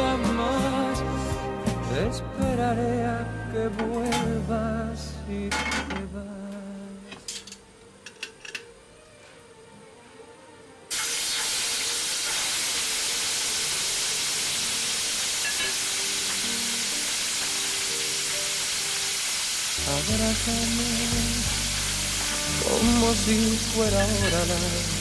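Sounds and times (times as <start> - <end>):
steak sizzling in frying pan: 10.9 - 25.0.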